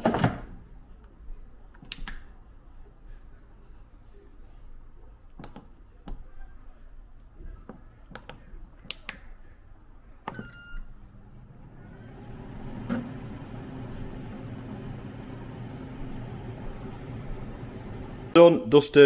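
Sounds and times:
short beep: 10.3s - 11.1s
air fryer fan running: 10.5s - 18.4s.

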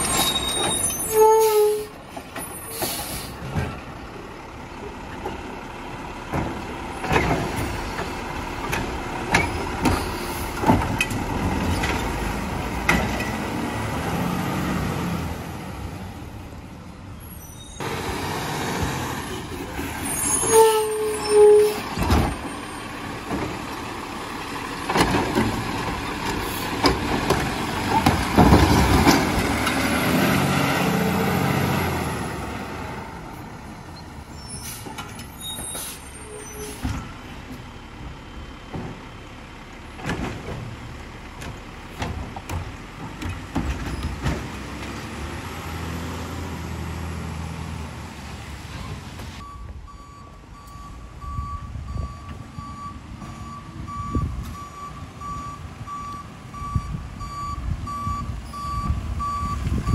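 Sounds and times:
garbage truck engine revving: 6.3s - 16.2s, 21.1s - 33.6s
reversing alarm beeps: 49.4s - 59.9s.

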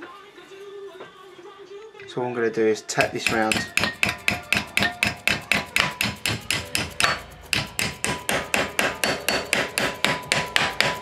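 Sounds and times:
mallet tapping metal strip: 3.0s - 11.0s.

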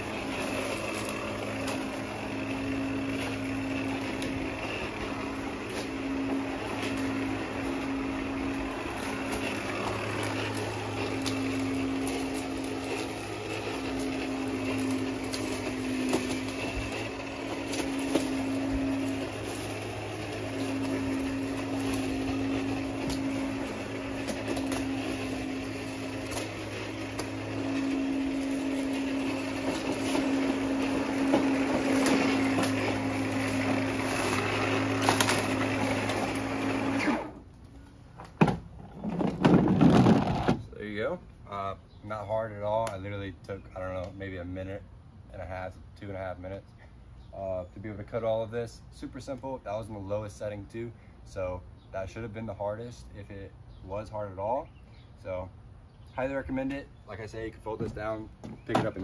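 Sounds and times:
electric lawn mower cutting grass: 0.0s - 40.9s.

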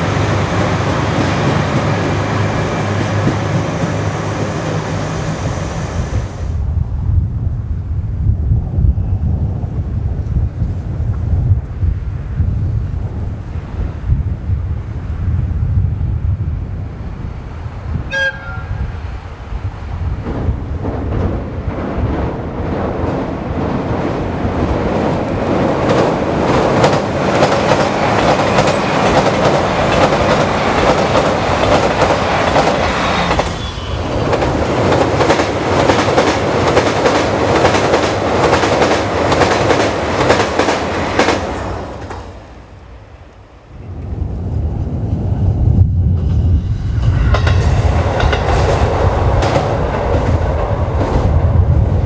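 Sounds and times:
diesel train engine: 0.0s - 6.7s, 24.2s - 52.0s
train horn toot: 18.1s - 19.0s
train wheels clattering over joints: 25.7s - 42.3s.

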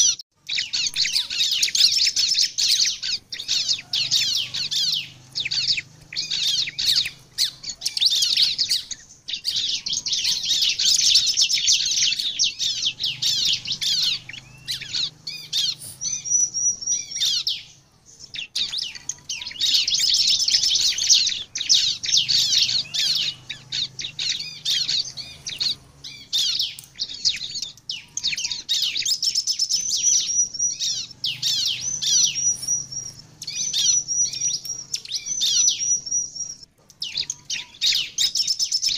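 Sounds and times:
bird singing rapid high chirps: 0.0s - 38.9s
thin whistled bird notes: 0.0s - 38.9s.

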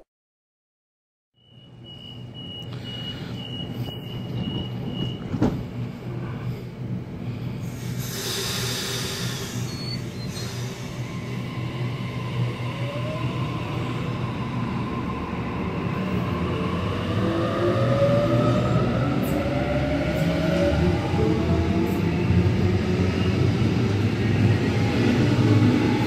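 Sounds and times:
train wheels rumbling: 2.8s - 26.0s
air hiss: 7.7s - 11.1s.

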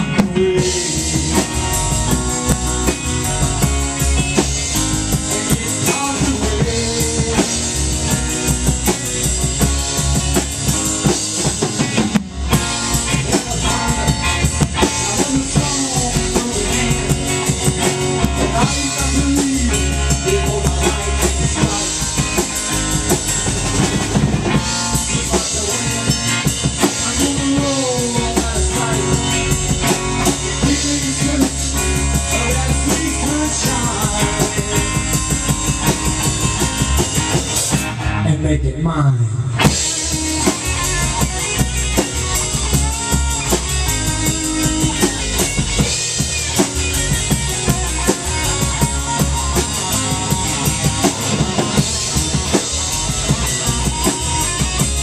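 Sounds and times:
drum kit steady beat: 0.0s - 38.2s, 39.6s - 55.0s
rock band playing instrumental: 0.0s - 38.4s, 39.2s - 55.0s
sliding melodic line: 39.8s - 55.0s.

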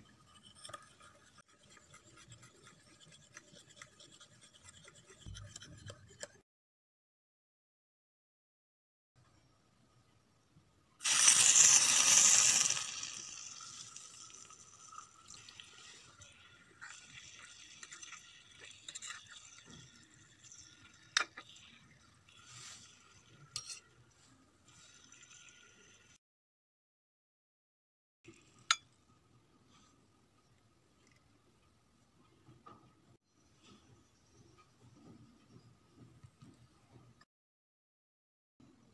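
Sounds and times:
spoon stirring in metal pot: 0.0s - 6.4s, 12.3s - 25.8s
water pouring into pot: 11.0s - 23.5s, 24.8s - 26.2s.

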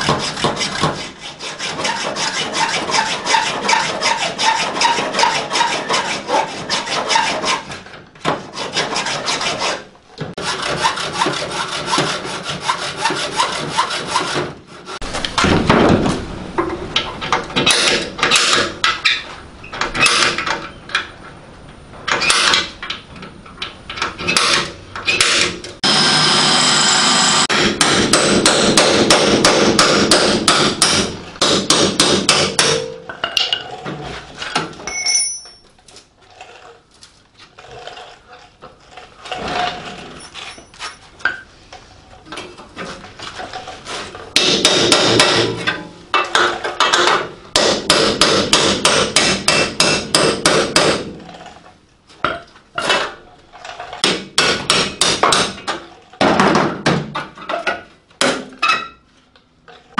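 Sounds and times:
hammer striking sheet steel: 27.4s - 33.0s, 44.4s - 51.2s.

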